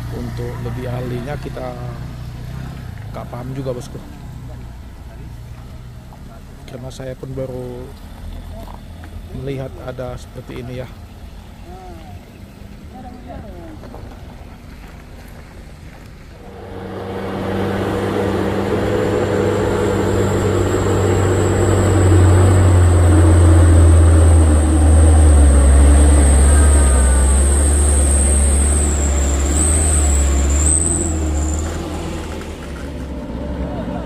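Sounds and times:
diesel truck engine passing: 16.3 - 34.0
steady high whine: 16.4 - 32.7.

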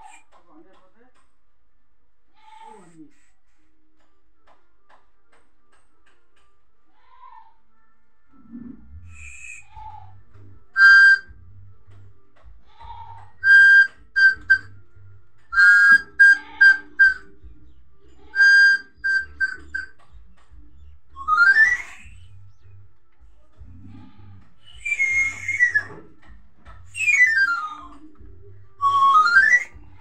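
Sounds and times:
short whistled notes: 9.1 - 10.0, 10.7 - 11.4, 13.4 - 14.8, 15.5 - 17.3, 18.3 - 20.0, 21.2 - 22.4, 24.6 - 26.0, 26.9 - 27.8, 28.8 - 29.8
rising whistle: 10.8 - 11.3, 13.4 - 14.7, 15.6 - 17.3, 18.4 - 19.9, 24.7 - 25.9, 28.8 - 29.8.

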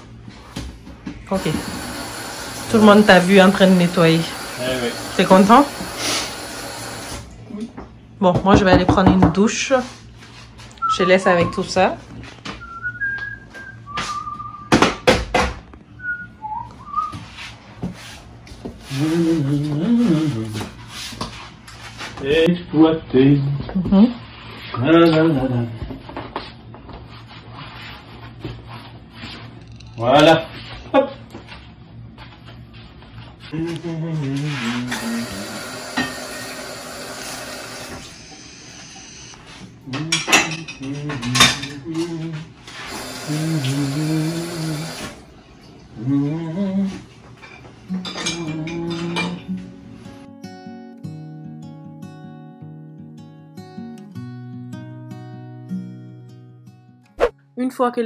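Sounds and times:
kitchen tap running: 1.3 - 7.4, 34.9 - 39.4, 42.9 - 45.2
person whistling: 12.6 - 14.8, 16.0 - 17.2
plates and cutlery clattering: 40.0 - 41.9, 47.4 - 49.5.

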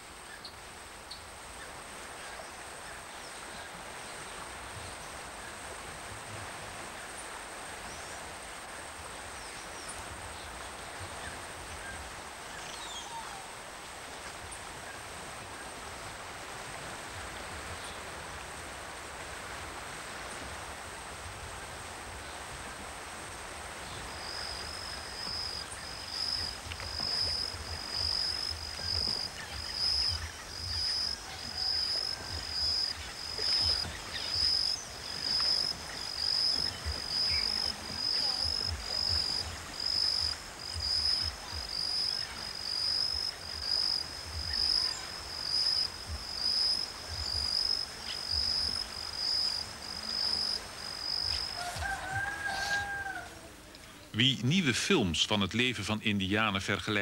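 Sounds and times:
insect whine: 0.0 - 54.7
insect chirp repeating: 23.8 - 53.0.

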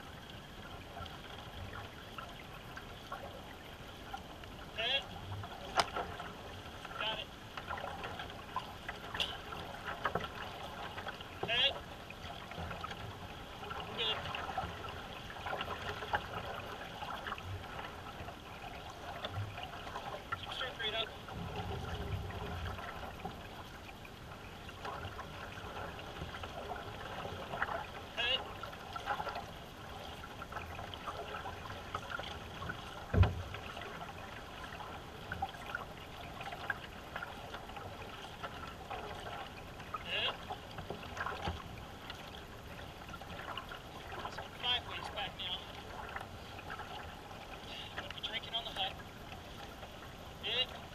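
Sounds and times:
paddle pulling through water: 0.0 - 50.9
water trickling along hull: 0.0 - 50.9
low thump: 33.1 - 33.5.

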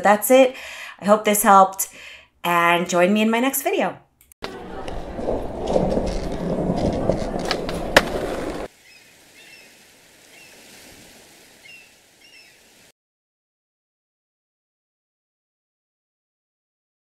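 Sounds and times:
skateboard wheels rolling on hard floor: 4.4 - 8.7.

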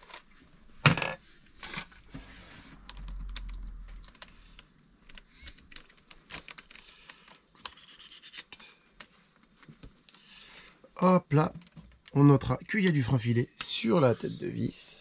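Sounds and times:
small parts and tools clicking: 2.8 - 10.3.

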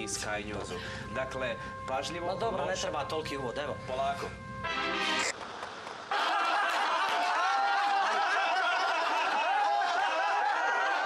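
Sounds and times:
crowd laughing: 6.0 - 11.0.

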